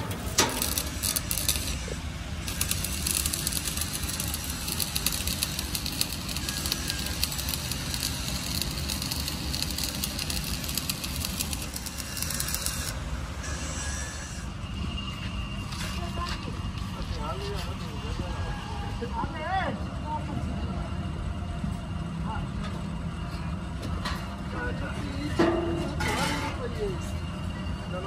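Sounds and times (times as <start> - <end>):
dense crackling hiss: 0.0 - 12.9
low workshop rumble: 0.0 - 28.0.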